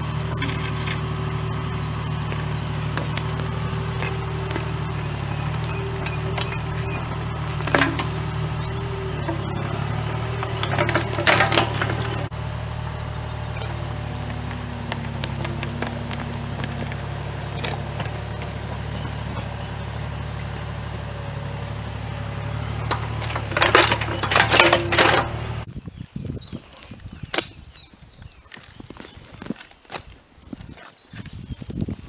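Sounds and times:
roots cracking and snapping: 0:00.0 - 0:12.3, 0:13.7 - 0:19.7, 0:26.5 - 0:32.0
excavator engine running: 0:00.0 - 0:25.7.

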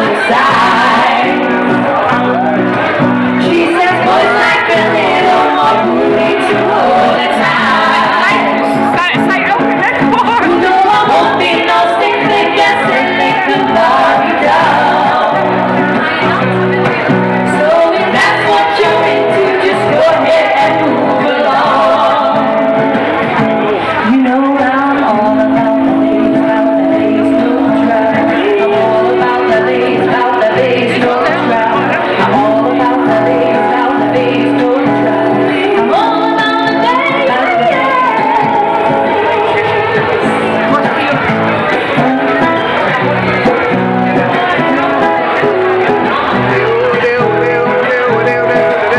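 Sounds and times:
women singing: 0:00.0 - 0:02.4, 0:03.1 - 0:23.0, 0:24.0 - 0:40.4
acoustic guitar: 0:00.0 - 0:48.9.

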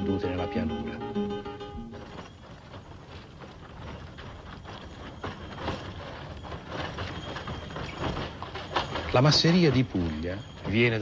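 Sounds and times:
cart wheels and boards rattling: 0:00.0 - 0:11.0
hoofbeats on dirt track: 0:00.0 - 0:11.0.

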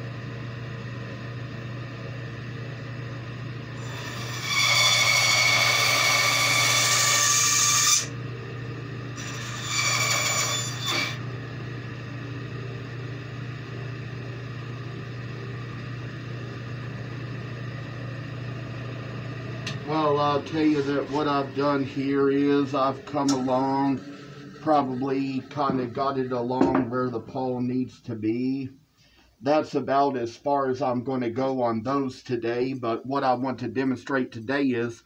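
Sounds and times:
bandsaw humming: 0:03.6 - 0:08.2, 0:09.1 - 0:11.3, 0:19.6 - 0:27.5
bandsaw blade cutting wood: 0:03.8 - 0:08.1, 0:09.2 - 0:11.2.

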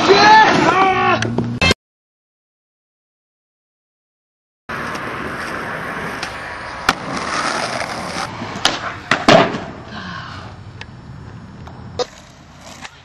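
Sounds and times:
skateboard wheels rolling on concrete: 0:04.7 - 0:13.0.

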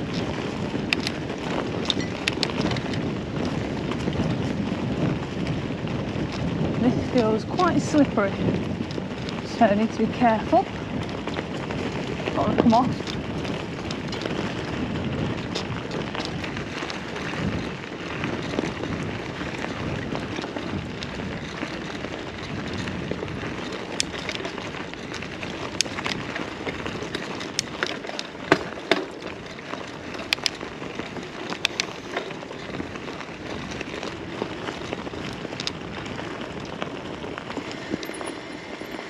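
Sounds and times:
sharp clicks and ticks: 0:00.0 - 0:01.2, 0:23.6 - 0:39.0
bike tyres crunching and rattling: 0:00.0 - 0:39.0.

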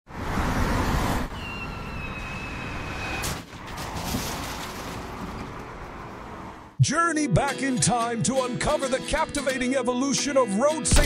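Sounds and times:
car rushing past: 0:00.1 - 0:06.8
rough rumbling with knocks: 0:03.2 - 0:06.5.

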